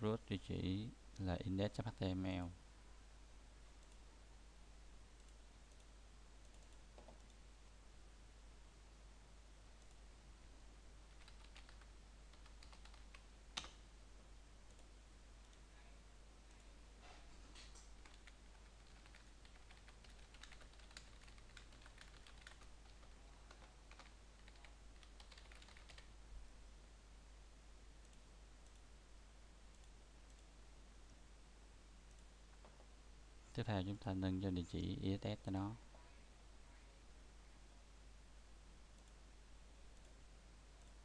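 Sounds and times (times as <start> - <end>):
mouse clicks: 5.2 - 7.4
keyboard typing: 11.1 - 13.8, 17.6 - 26.1.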